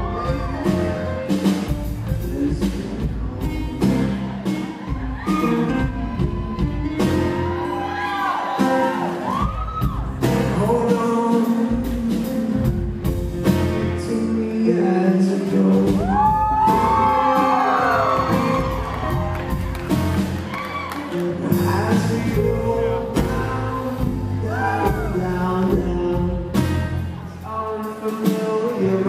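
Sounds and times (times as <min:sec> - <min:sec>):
man singing: 0:00.0 - 0:04.3, 0:10.1 - 0:19.1, 0:21.2 - 0:29.0
bass guitar: 0:00.0 - 0:29.0
drum kit: 0:00.0 - 0:29.0.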